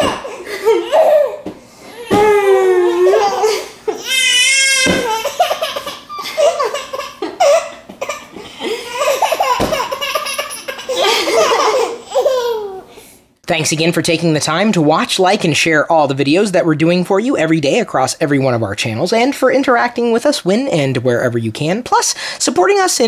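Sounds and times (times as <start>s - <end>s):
baby laughing: 0.0s - 12.9s
baby squealing: 0.0s - 12.9s
thumps: 4.8s - 5.2s, 9.4s - 10.0s.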